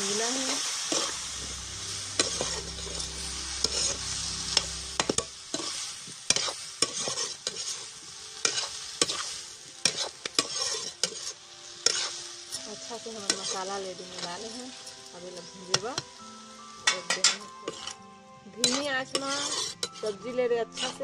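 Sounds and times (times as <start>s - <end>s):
food sizzling in a pan: 0.0s - 21.0s
metal spatula scraping a pan: 0.4s - 14.6s, 16.8s - 18.0s, 18.6s - 21.0s
low hum: 1.1s - 5.5s.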